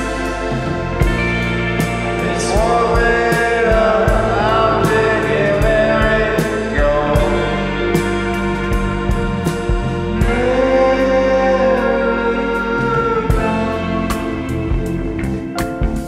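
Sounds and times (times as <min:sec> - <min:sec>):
live rock band playing: 0:00.0 - 0:16.0
voices singing long notes: 0:00.0 - 0:16.0.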